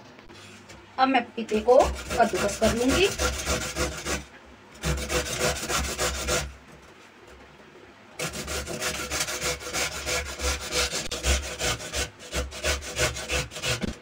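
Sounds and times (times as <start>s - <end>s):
grating on metal grater: 1.5s - 6.5s, 8.2s - 14.0s.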